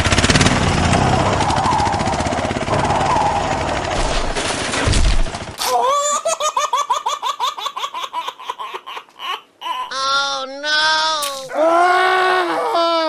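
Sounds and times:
engine-like rumbling: 0:00.0 - 0:05.6
loud low thump: 0:02.7 - 0:05.4
baby-like giggling: 0:05.6 - 0:11.5.

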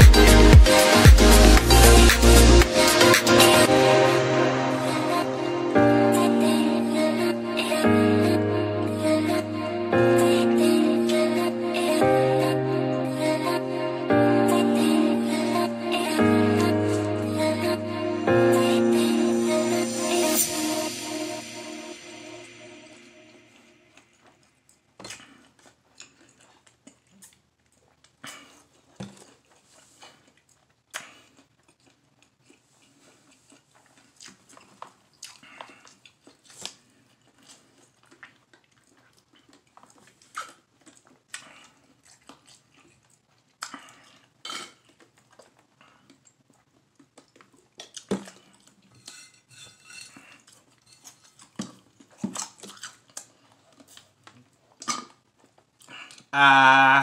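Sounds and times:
person chewing and swallowing: 0:23.9 - 0:49.3, 0:49.9 - 0:56.3.

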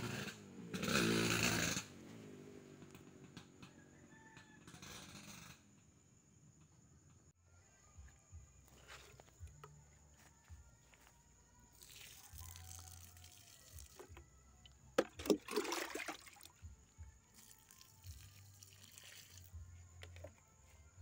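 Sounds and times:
water splashing: 0:15.0 - 0:16.6.

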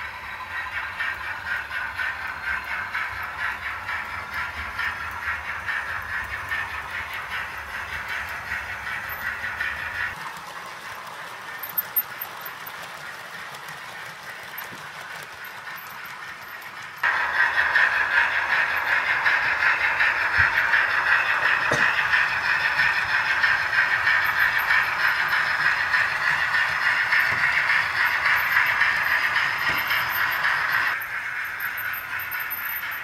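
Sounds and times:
model trains running on track: 0:00.0 - 0:33.0.

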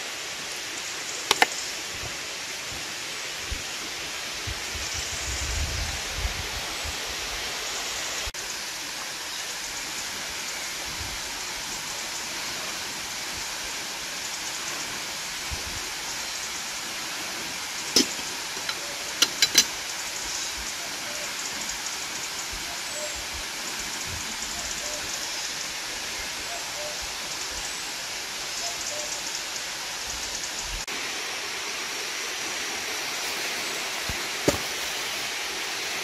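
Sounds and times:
steady rain falling: 0:00.0 - 0:36.0
sharp clicks: 0:01.3 - 0:01.6.

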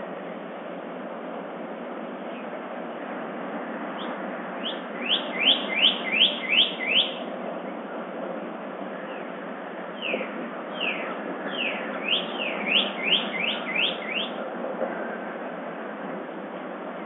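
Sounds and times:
songbird whistling: 0:04.0 - 0:07.3, 0:10.0 - 0:14.4.

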